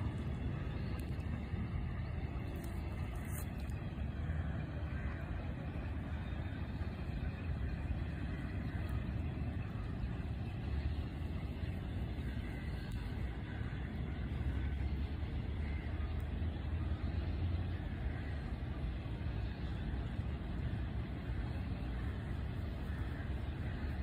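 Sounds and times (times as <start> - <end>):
low outdoor rumble: 0.0 - 24.0.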